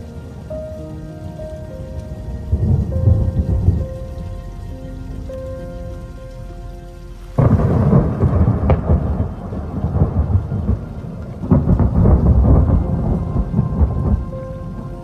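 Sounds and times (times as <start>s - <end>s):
steady rain: 0.0s - 15.0s
thunder cracking and rumbling: 1.9s - 4.4s, 7.4s - 15.0s.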